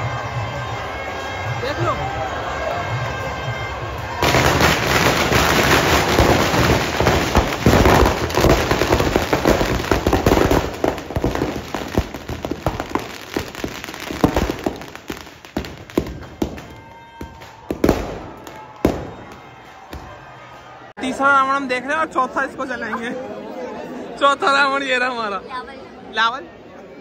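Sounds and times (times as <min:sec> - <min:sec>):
firecrackers crackling: 0:03.7 - 0:20.3.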